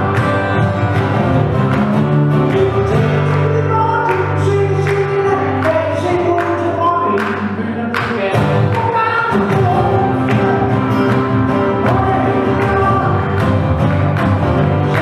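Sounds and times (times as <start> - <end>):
strummed acoustic guitars: 0.0 - 15.0
person singing: 2.3 - 13.8, 14.7 - 15.0.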